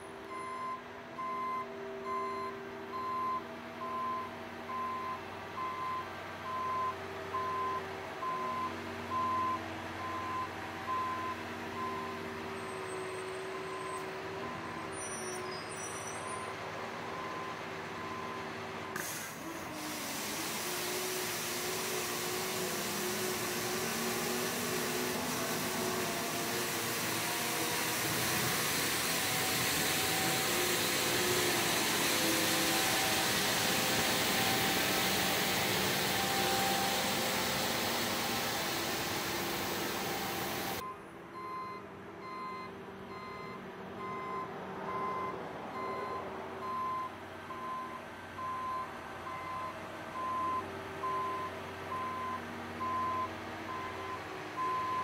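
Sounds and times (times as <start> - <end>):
reversing alarm beeping: 0.3 - 12.3, 13.6 - 18.5, 21.9 - 55.0
truck engine running: 15.6 - 41.2
street sweeper brooms rushing: 18.6 - 40.8.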